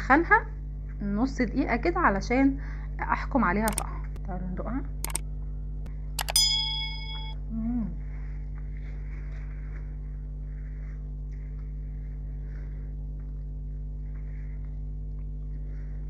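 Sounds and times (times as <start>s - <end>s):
low mains hum: 0.0s - 16.0s
woman humming mm: 7.5s - 8.0s
soft chewing: 8.5s - 16.0s.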